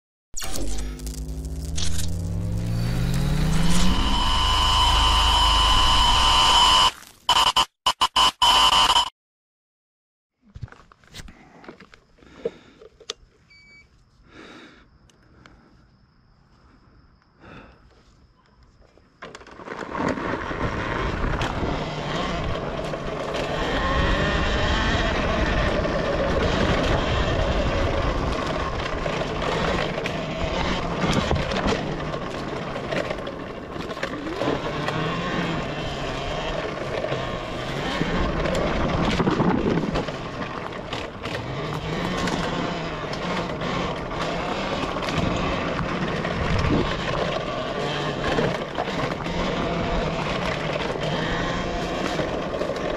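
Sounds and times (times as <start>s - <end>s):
electric motor whine: 0.5s - 6.9s, 21.3s - 33.2s, 33.9s - 52.9s
wind: 10.3s - 52.9s
tyre noise on dirt: 18.7s - 52.9s.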